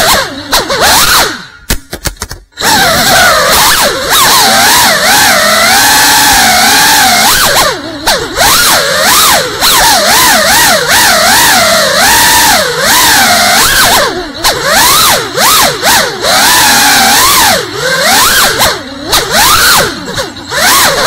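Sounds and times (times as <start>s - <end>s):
drone motors whining: 0.0s - 1.7s, 2.5s - 21.0s.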